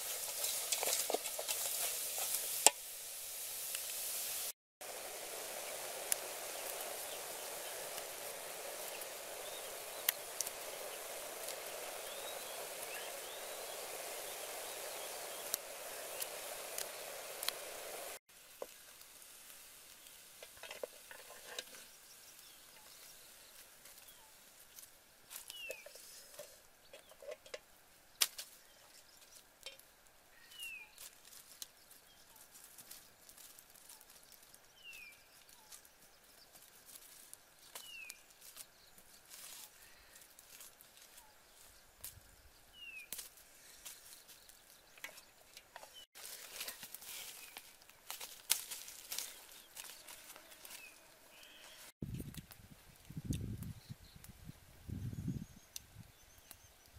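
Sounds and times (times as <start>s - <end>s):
shrimp stirred in a pot: 0.0s - 2.9s
shrimp sizzling in a pot: 0.0s - 52.0s.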